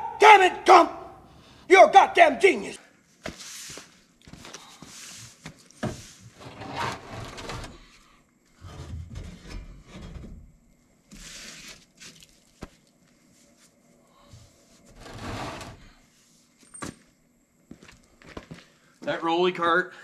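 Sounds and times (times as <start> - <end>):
sheet metal scraping: 6.4 - 7.8, 14.9 - 15.8.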